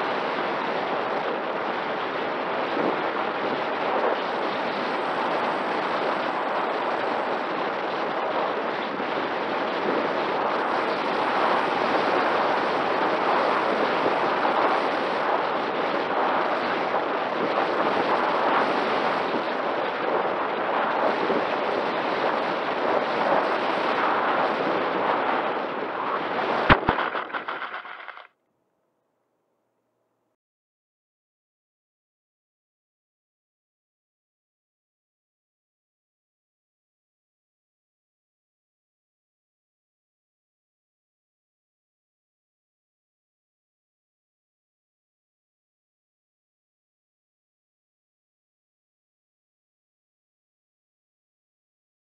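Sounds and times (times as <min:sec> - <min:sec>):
rough crackling wind rush: 0:00.0 - 0:28.3.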